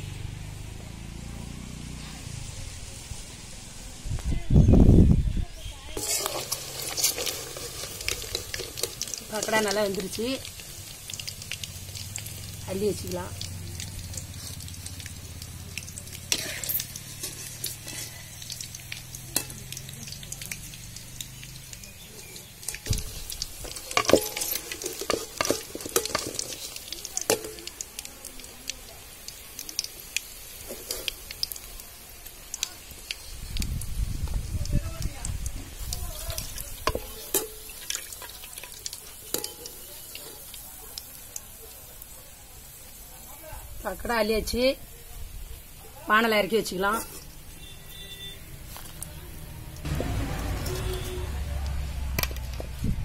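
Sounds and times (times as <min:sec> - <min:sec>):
food sizzling in hot oil: 0:05.6 - 0:53.0
metal ladle clinking on pan: 0:19.4 - 0:19.8, 0:22.6 - 0:26.6, 0:27.2 - 0:27.7, 0:36.9 - 0:38.7, 0:39.3 - 0:40.4.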